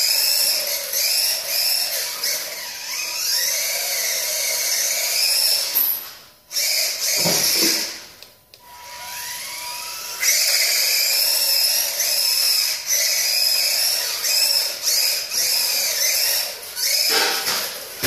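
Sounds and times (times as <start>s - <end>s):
rc car motor whining: 0.0s - 18.0s.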